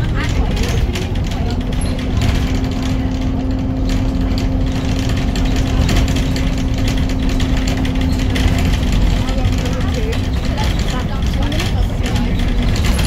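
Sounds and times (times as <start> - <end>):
bus engine rumbling: 0.0 - 13.0
fittings rattling and clicking: 0.1 - 13.0.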